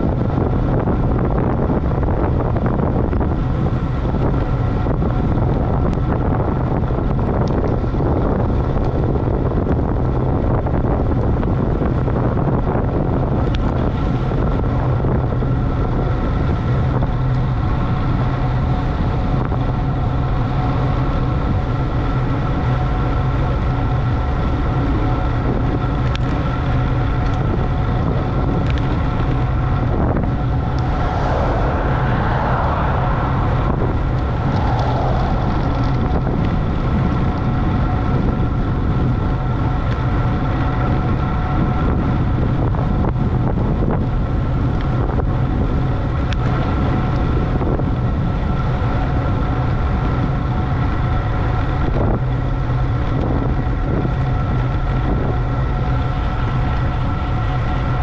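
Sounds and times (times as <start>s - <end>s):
wind rush: 0.0s - 22.4s, 25.2s - 50.1s
road noise: 15.5s - 42.9s
steady hum: 26.0s - 41.8s.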